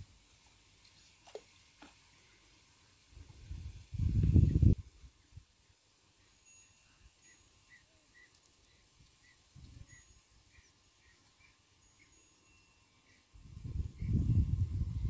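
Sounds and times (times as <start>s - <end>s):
faint high chirps: 6.2s - 14.5s.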